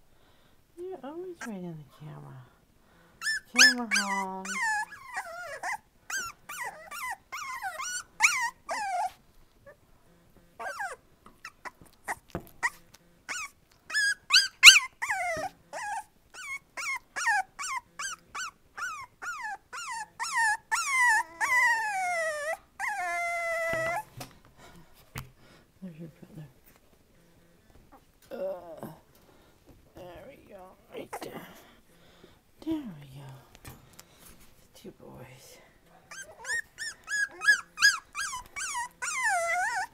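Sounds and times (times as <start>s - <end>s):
puppies whining and yelping: 3.2s - 9.8s, 10.6s - 24.2s, 36.1s - 39.9s.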